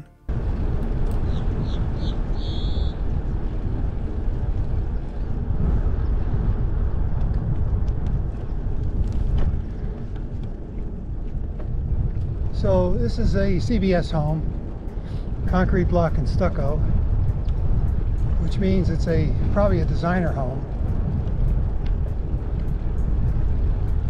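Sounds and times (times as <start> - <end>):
tyre noise on pavement: 0.3 - 12.9
wind buffeting microphone: 0.3 - 24.0.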